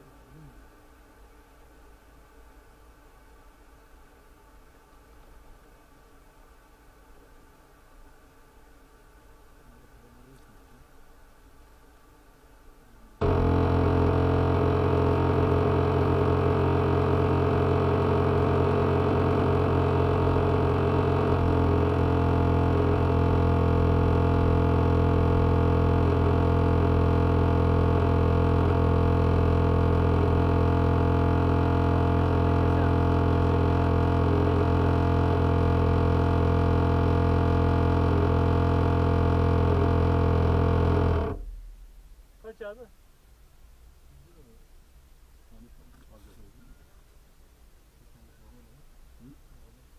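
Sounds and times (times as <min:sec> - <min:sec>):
tank float humming drone: 0:13.2 - 0:42.2.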